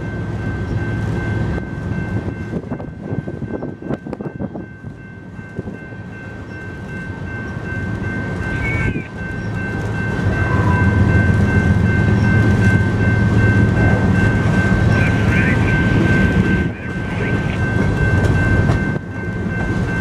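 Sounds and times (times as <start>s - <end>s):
train rumble: 0.0s - 20.0s
train wheels clicking on rail joints: 0.3s - 20.0s
steady high-pitched tone: 5.9s - 20.0s.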